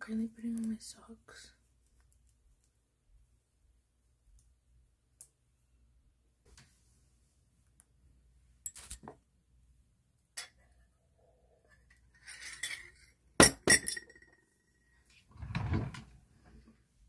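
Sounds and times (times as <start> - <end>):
glass clinking: 12.2 - 14.9.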